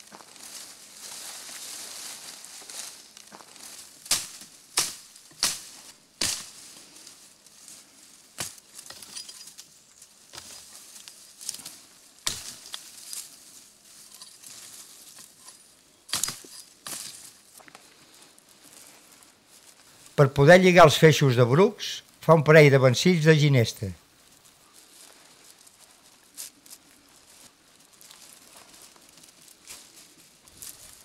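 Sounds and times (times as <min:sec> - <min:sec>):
brushwood rustling: 0:00.0 - 0:20.8, 0:24.0 - 0:31.0
stems cracking as cut: 0:03.1 - 0:06.6, 0:10.3 - 0:13.3, 0:14.1 - 0:17.9.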